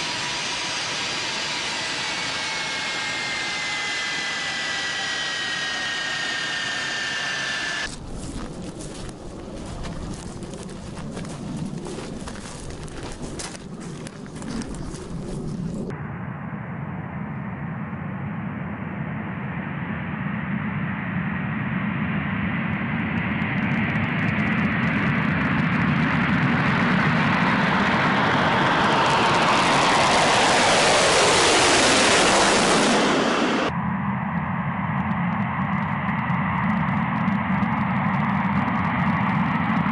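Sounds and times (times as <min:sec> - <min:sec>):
aircraft whine falling in pitch: 0:00.0 - 0:09.5, 0:14.4 - 0:39.9
aircraft engines: 0:00.0 - 0:16.0, 0:18.0 - 0:39.9.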